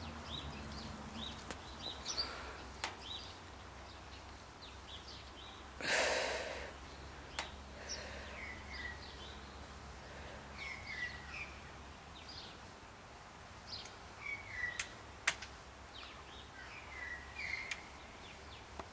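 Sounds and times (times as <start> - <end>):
small birds chirping: 0.0 - 18.9
sharp clicks: 14.8 - 15.6.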